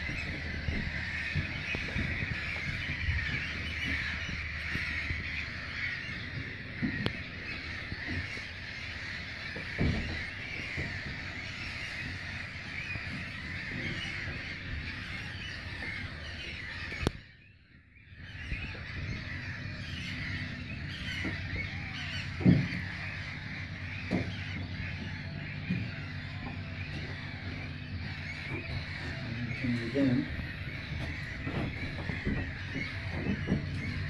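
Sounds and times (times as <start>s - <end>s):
gulls calling: 0.0s - 34.0s
wind buffeting microphone: 0.0s - 34.0s.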